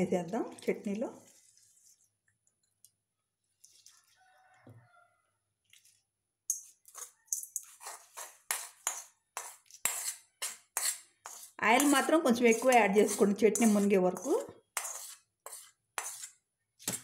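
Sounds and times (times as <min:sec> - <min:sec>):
metal spoon scraping a pan: 0:06.5 - 0:17.0.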